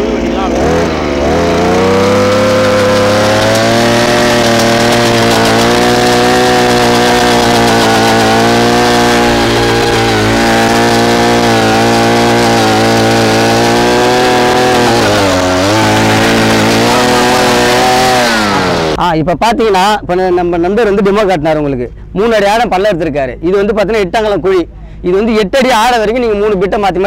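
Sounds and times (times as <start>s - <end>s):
earth auger engine boring soil: 0.0s - 19.0s.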